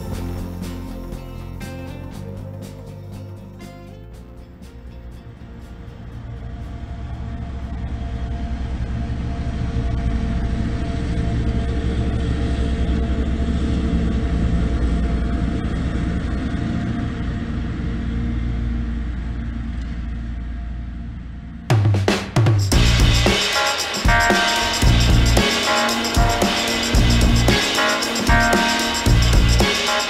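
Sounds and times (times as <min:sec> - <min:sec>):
engine drone passing by: 0:00.0 - 0:21.6.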